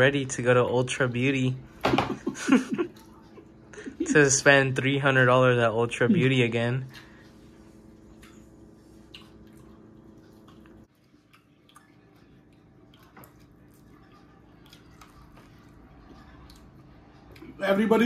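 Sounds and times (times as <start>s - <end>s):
low steady hum: 0.0s - 18.0s
soft chewing: 2.4s - 4.0s, 6.8s - 17.6s.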